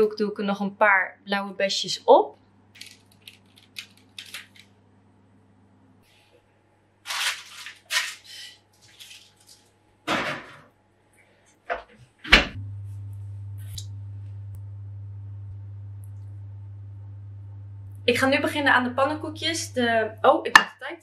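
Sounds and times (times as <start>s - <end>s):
steady low hum: 10.8s - 20.6s
oven door shutting: 12.3s - 12.6s.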